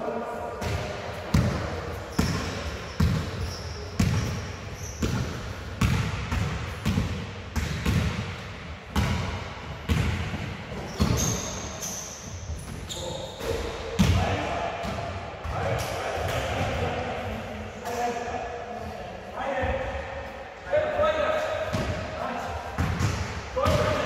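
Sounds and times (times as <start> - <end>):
basketballs bouncing in hall: 0.5 - 18.1, 19.4 - 20.1, 20.9 - 24.0
faint high squeaks: 2.1 - 5.0, 10.9 - 13.6.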